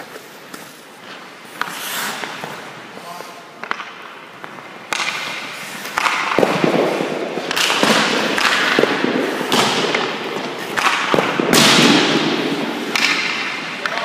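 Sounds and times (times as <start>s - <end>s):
hockey stick hitting puck: 0.0s - 14.0s
puck striking goalie: 3.6s - 14.0s.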